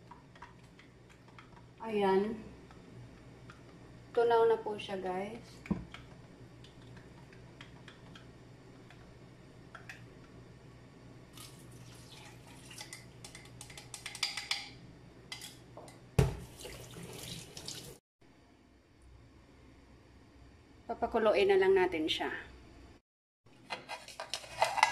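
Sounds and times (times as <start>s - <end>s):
liquid pouring and splashing: 11.3s - 13.1s, 16.2s - 18.0s.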